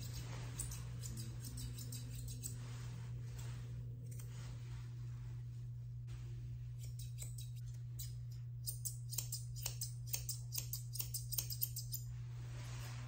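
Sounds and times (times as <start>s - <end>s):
shears snipping fur: 0.0s - 4.6s, 6.7s - 12.1s.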